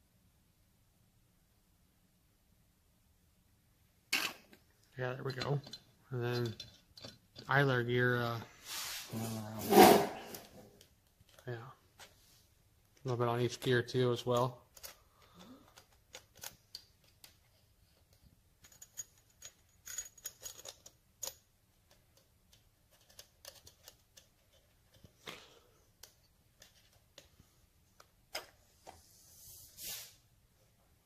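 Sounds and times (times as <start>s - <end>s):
short hiss: 8.6s - 9.9s, 29.3s - 30.2s.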